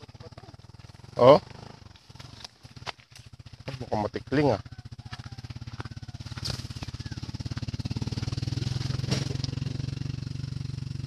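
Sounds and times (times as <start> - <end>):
small engine running: 0.0 - 11.0
brush snapping underfoot: 6.3 - 6.9.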